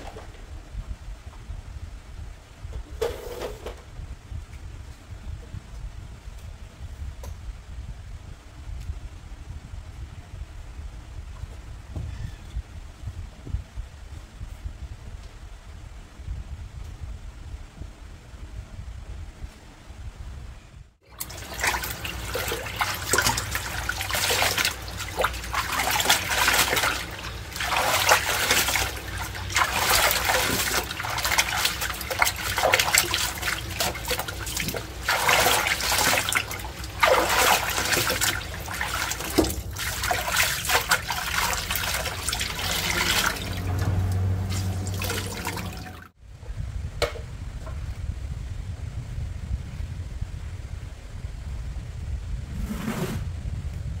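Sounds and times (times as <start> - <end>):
hands scrubbing rags in soapy water: 21.1 - 46.0.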